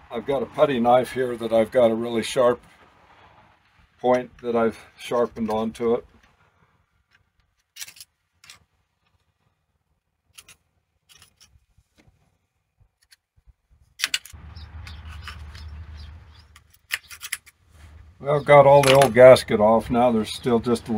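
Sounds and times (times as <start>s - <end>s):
low rumble with hiss: 0.0s - 6.1s.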